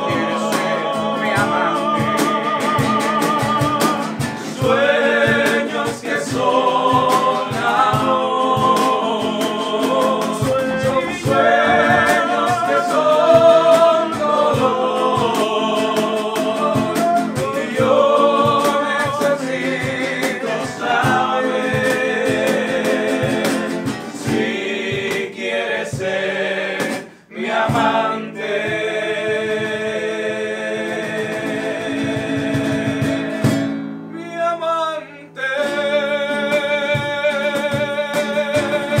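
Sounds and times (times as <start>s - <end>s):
strummed nylon-string guitar: 0.0s - 25.3s, 30.8s - 34.2s, 35.2s - 39.0s
sharp tapping beat: 0.0s - 30.0s
male vocal group singing: 0.0s - 39.0s.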